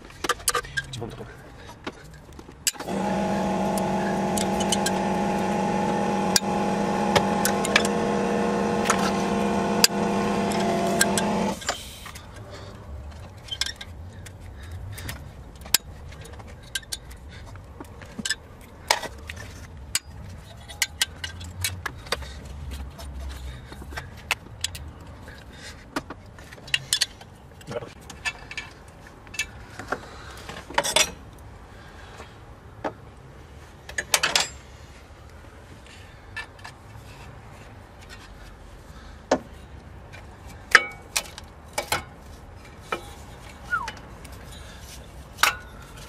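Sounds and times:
loud buzzing machine hum: 2.8s - 11.6s.

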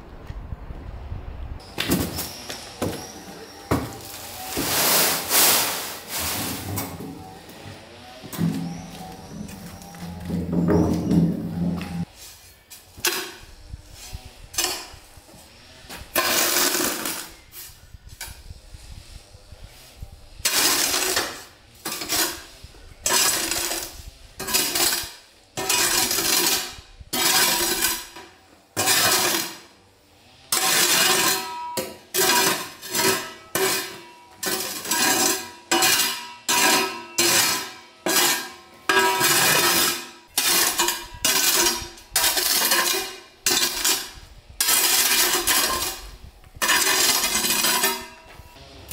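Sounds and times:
broom sweeping grit over stone: 4.0s - 6.8s, 11.6s - 12.8s.

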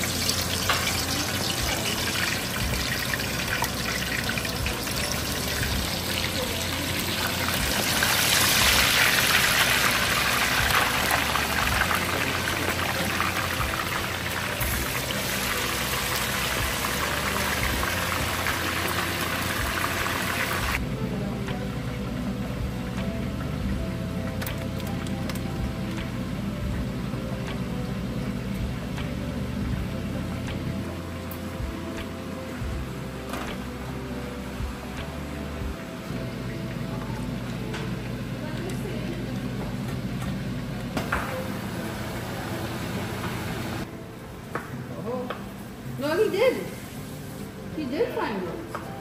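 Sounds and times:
chicken deep-frying in oil: 0.0s - 20.8s.

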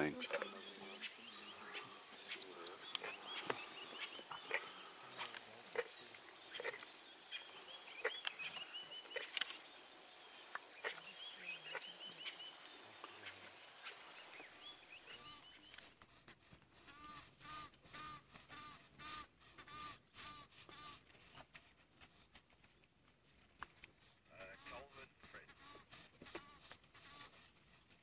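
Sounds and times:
birds chirping: 0.0s - 15.9s.

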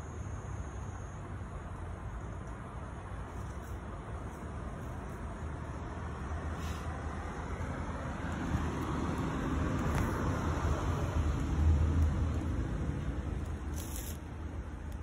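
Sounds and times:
vehicle passing with rushing hum: 3.2s - 15.0s.

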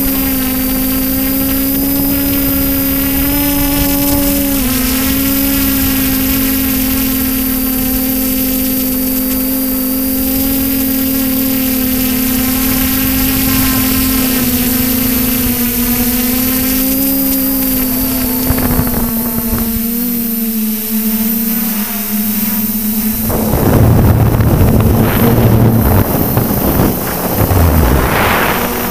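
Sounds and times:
gusty wind noise: 0.0s - 7.3s, 17.8s - 20.1s, 22.8s - 28.9s
drone motors humming: 0.0s - 28.9s.

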